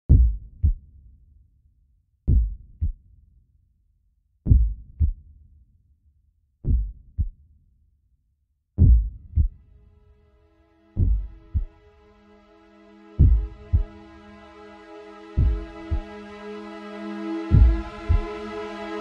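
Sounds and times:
heartbeat double thump: 0:00.1 - 0:00.8, 0:02.3 - 0:03.0, 0:04.5 - 0:05.1, 0:08.8 - 0:09.5, 0:11.0 - 0:11.7, 0:13.2 - 0:13.9, 0:15.4 - 0:16.0, 0:17.6 - 0:18.2.

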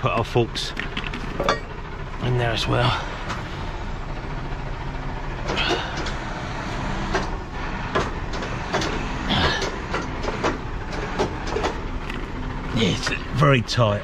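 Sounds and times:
diesel engine running: 0:00.0 - 0:14.0
metallic clicks and knocks: 0:00.7 - 0:01.7, 0:07.1 - 0:12.3.

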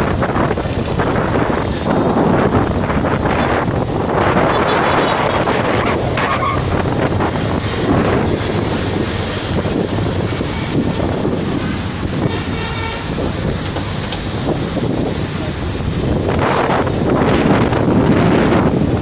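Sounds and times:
road traffic rumble: 0:00.0 - 0:19.0
wind buffeting microphone: 0:00.0 - 0:19.0
faint horn: 0:12.2 - 0:13.3.

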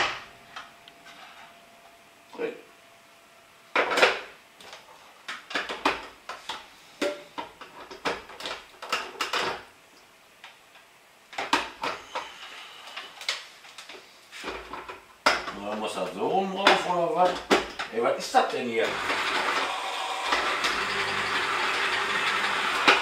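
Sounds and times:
plastic parts clicking and clattering: 0:07.4 - 0:09.6, 0:16.6 - 0:17.9.

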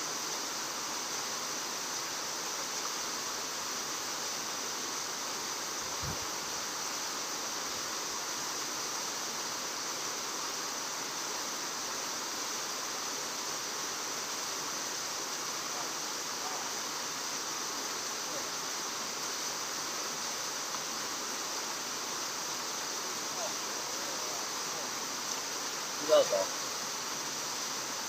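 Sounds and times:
high hiss: 0:00.0 - 0:28.0.

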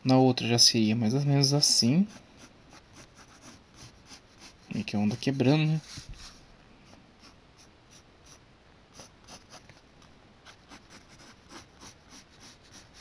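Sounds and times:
pencil scratching on paper: 0:01.6 - 0:06.4, 0:07.2 - 0:09.8, 0:10.4 - 0:13.0.

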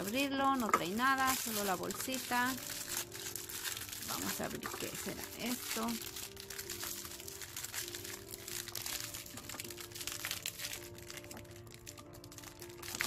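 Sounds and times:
foil wrappers crinkling: 0:00.0 - 0:13.0.

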